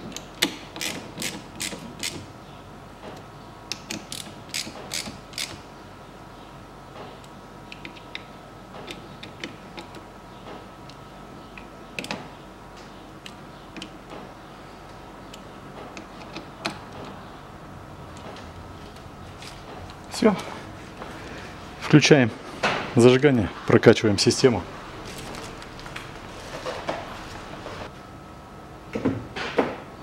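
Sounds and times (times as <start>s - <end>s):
hand ratchet clicking: 0.2s - 2.2s, 3.7s - 5.6s.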